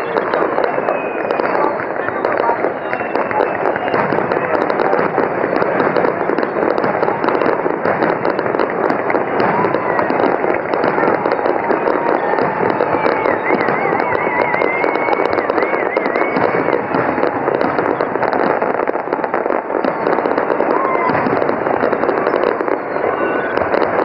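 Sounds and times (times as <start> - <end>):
wavering high whistle: 0.0 - 4.0, 11.8 - 16.8
firework bursts popping: 0.0 - 24.0
firework fountain hissing and crackling: 0.0 - 24.0.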